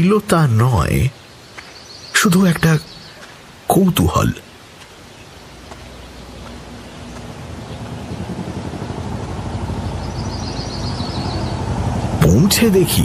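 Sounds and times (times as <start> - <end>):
engine low pulsing rumble: 5.8 - 13.0.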